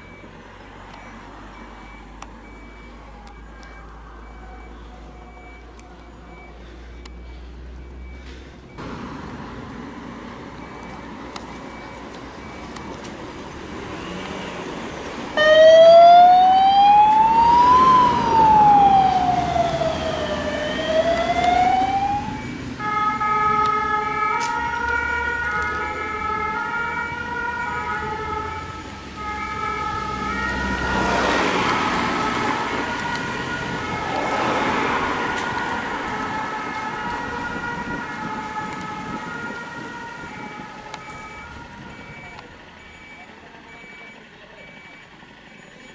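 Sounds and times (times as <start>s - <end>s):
passing vehicles road noise: 0.0s - 45.9s
siren wailing: 15.3s - 42.5s
two-tone siren: 15.4s - 45.0s.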